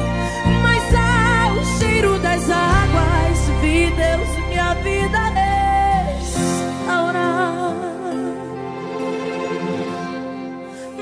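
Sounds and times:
worship band music: 0.0s - 11.0s.

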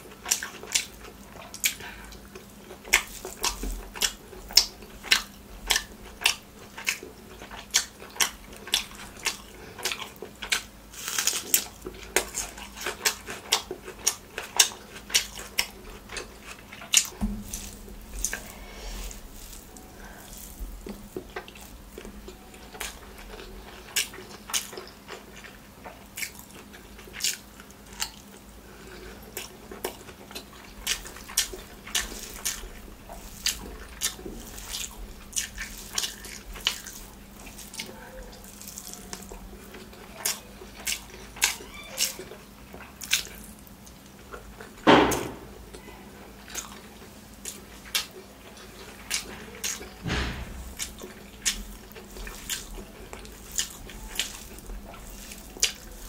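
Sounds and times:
wet eating by hand: 0.0s - 56.0s
lip smacks and squelches: 47.4s - 56.0s.

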